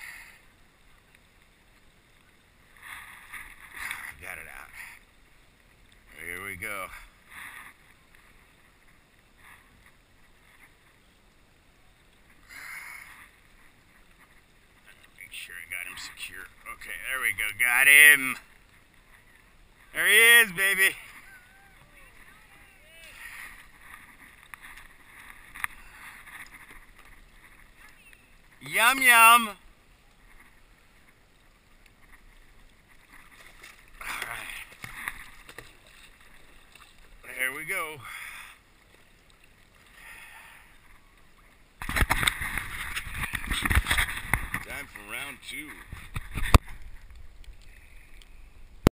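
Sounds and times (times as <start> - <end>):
water lapping: 0.0 - 48.6
water splashing: 11.7 - 48.5.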